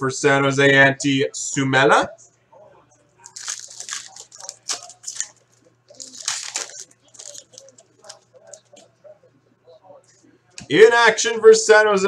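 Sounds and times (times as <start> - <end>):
foil wrapper tearing and crinkling: 3.2 - 8.6.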